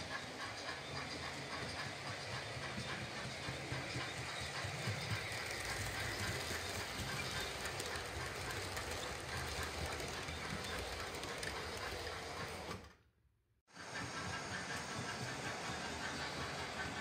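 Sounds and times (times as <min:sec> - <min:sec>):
model train wheels rattling: 0:00.0 - 0:12.9.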